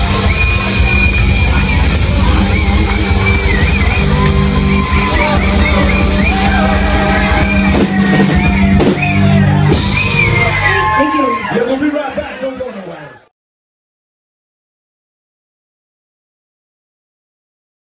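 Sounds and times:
rock band playing: 0.0s - 12.0s
singer's melody: 0.0s - 12.4s
crowd yelling along: 0.0s - 13.3s.

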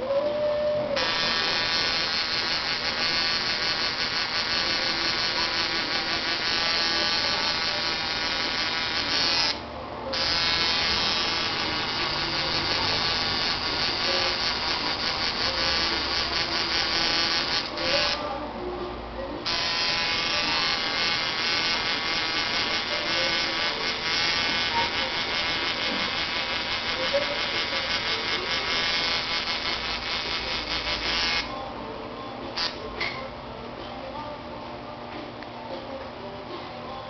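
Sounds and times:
tattoo machine buzzing: 1.0s - 18.2s, 19.4s - 31.6s.

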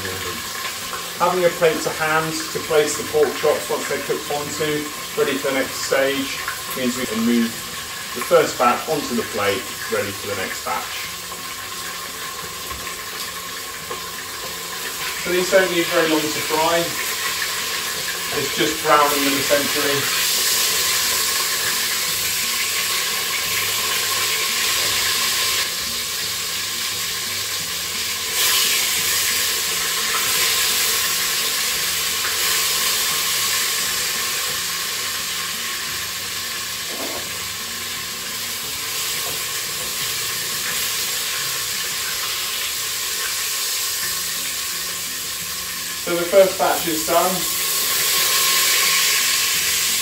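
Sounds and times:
meat sizzling in a pot: 0.0s - 50.0s.

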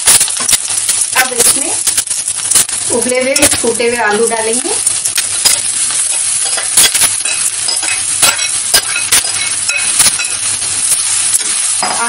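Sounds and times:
onions sizzling in oil: 0.0s - 12.0s
metal clinks and scrapes on pan: 6.1s - 10.5s.

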